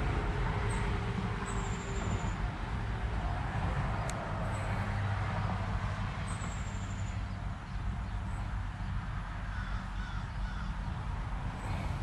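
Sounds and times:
low mechanical hum: 0:00.0 - 0:12.0
faint bird calls: 0:09.5 - 0:10.9.

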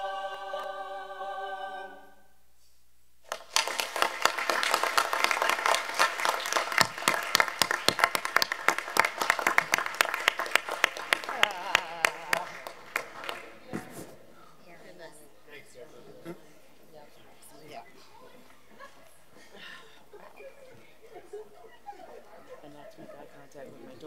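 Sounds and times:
choir holding a chord: 0:00.0 - 0:02.3
audience applause: 0:03.3 - 0:13.6.

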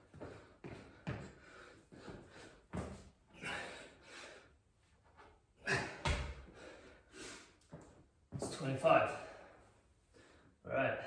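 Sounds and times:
man breathing hard: 0:00.0 - 0:04.7, 0:05.6 - 0:07.8, 0:09.1 - 0:10.6.

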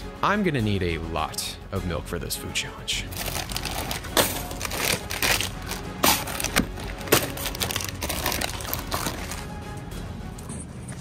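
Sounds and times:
plastic packages crinkling: 0:03.1 - 0:09.5.

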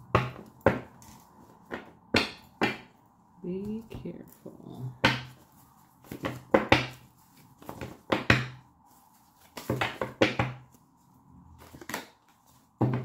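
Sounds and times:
cards being shuffled: 0:05.3 - 0:08.1, 0:08.9 - 0:12.8.

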